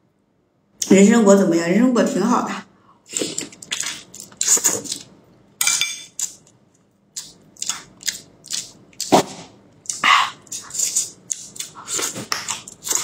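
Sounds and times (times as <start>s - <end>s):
person chewing meat: 3.1s - 5.2s, 7.1s - 13.0s.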